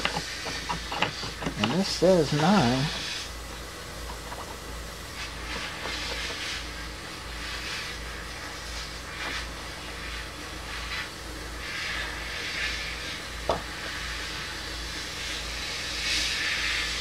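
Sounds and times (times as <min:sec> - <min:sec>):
small electric motor running: 0:00.0 - 0:03.4.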